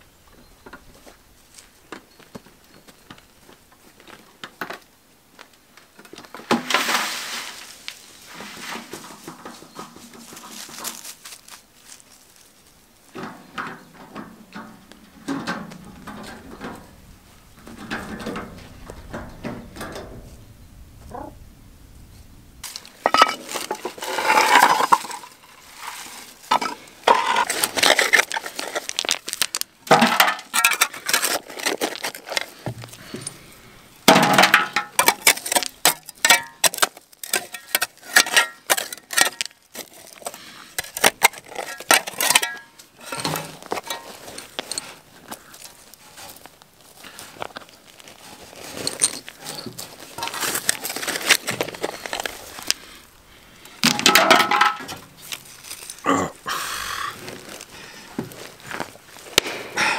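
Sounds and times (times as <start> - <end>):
wheelbarrow rattling: 6.0 - 12.0, 13.1 - 20.3, 22.6 - 53.0, 53.6 - 56.3, 56.9 - 59.9
stones clattering and clinking: 22.6 - 33.4, 34.3 - 53.0.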